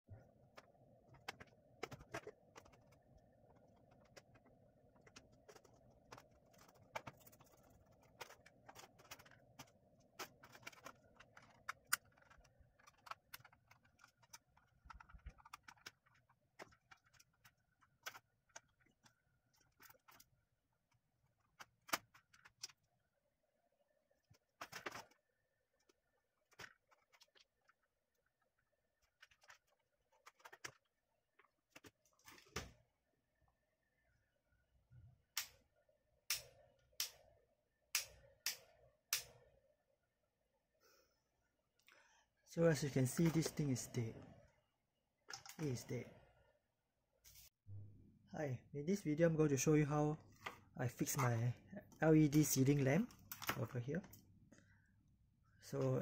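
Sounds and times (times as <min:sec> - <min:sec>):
screwdriver and small parts clicking: 0:03.6 - 0:20.3.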